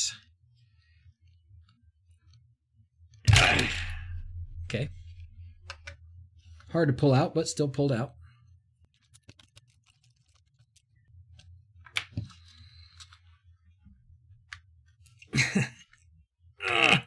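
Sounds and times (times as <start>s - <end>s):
person grunting: 3.3s - 4.9s, 16.6s - 17.0s.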